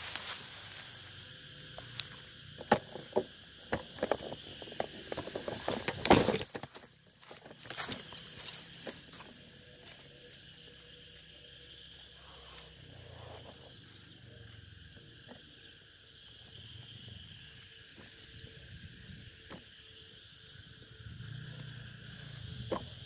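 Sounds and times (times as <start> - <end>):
rustling in dry undergrowth: 0.0 - 2.5, 4.4 - 14.3
insects droning: 0.0 - 23.0.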